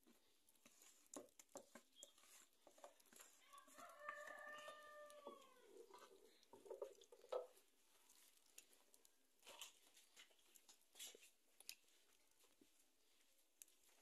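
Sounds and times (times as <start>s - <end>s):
wood fire crackling: 0.0s - 14.0s
wooden spoon scraping bowl: 0.7s - 8.2s.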